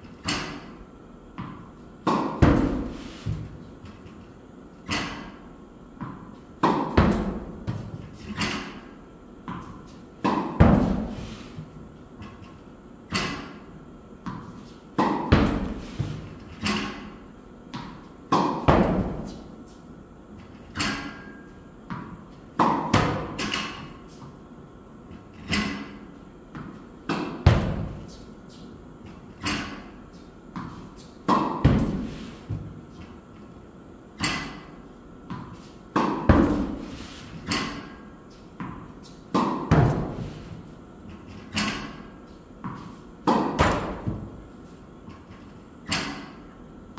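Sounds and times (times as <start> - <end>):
racket striking tennis ball: 0.2 - 0.7, 1.4 - 3.6, 4.8 - 5.4, 6.0 - 8.9, 9.5 - 11.4, 13.1 - 19.5, 20.7 - 24.3, 25.4 - 28.6, 29.4 - 33.0, 34.2 - 40.6, 41.3 - 44.4
balls hitting netting: 0.2 - 0.8, 1.4 - 4.0, 6.0 - 11.3, 13.1 - 19.6, 20.4 - 24.2, 25.4 - 30.0, 30.6 - 32.8, 34.2 - 44.4
tennis balls bouncing on court: 1.4 - 3.6, 6.0 - 8.7, 9.4 - 11.2, 14.2 - 17.0, 17.7 - 19.4, 21.9 - 24.3, 26.5 - 28.1, 35.3 - 36.8, 38.6 - 40.3, 42.6 - 44.3.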